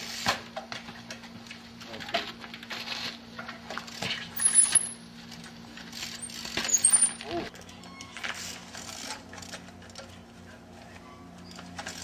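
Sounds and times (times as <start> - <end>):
high squeaks: 6.2 - 8.4.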